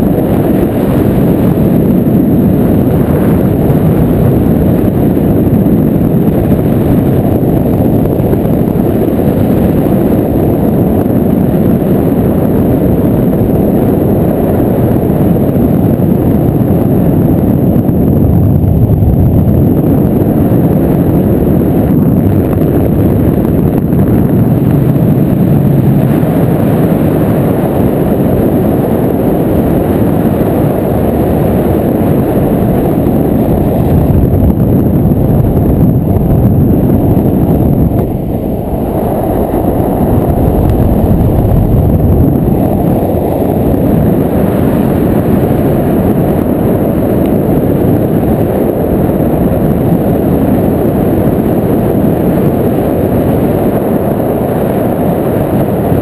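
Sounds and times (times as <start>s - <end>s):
wind rushing over microphone: 0.0s - 56.0s.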